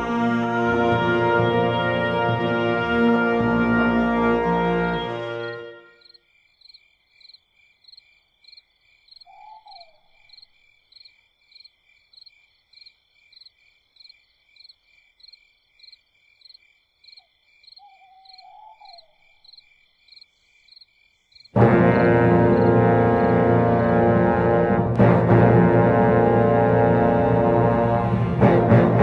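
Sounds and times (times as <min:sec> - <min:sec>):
full orchestra playing: 0:00.0 - 0:05.9, 0:21.6 - 0:29.0
crickets chirping: 0:05.9 - 0:23.0
owl hooting: 0:09.2 - 0:10.2, 0:17.8 - 0:19.4.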